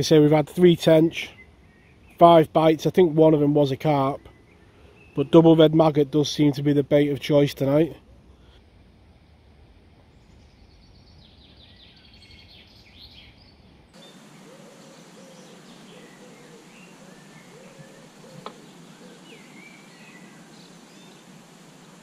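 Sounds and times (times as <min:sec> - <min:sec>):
small birds chirping: 0:00.0 - 0:07.0, 0:10.1 - 0:22.0
low repeated bird call: 0:10.1 - 0:22.0.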